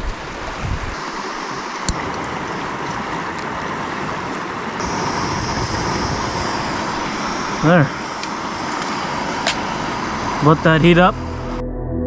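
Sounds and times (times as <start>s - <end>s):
river water rushing: 0.0s - 11.1s
high hiss: 4.8s - 11.6s.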